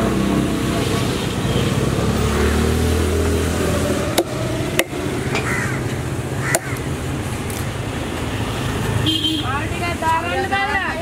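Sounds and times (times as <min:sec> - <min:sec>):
cleaver chopping fish on wood: 0:04.1 - 0:05.5, 0:06.5 - 0:06.8.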